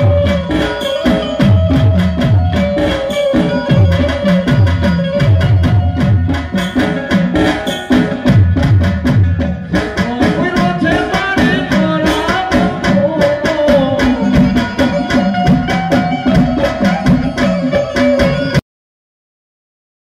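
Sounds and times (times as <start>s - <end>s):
drums beaten in fast rhythm: 0.0s - 18.6s
person singing: 9.7s - 18.6s.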